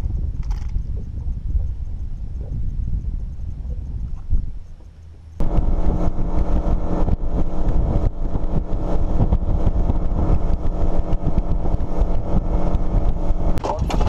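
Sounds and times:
wind on microphone: 0.0s - 14.0s
outboard boat engine running: 4.7s - 14.0s.

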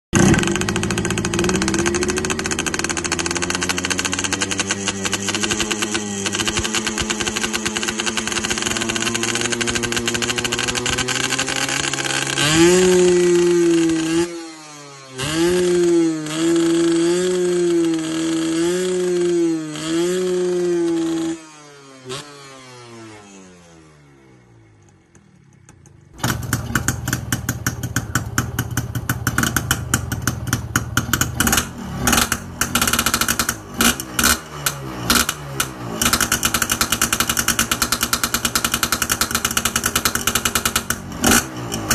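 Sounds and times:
two-stroke motorcycle engine revving: 0.1s - 41.9s.

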